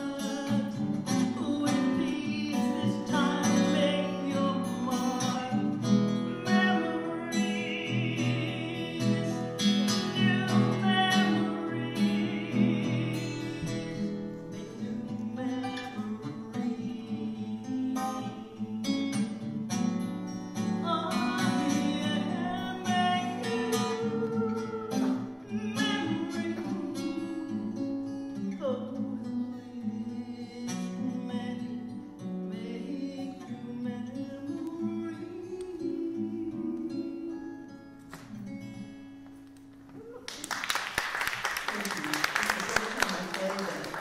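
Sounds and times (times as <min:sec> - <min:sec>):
woman singing: 0:00.0 - 0:19.4, 0:20.8 - 0:31.9
acoustic guitar strumming: 0:00.0 - 0:39.8.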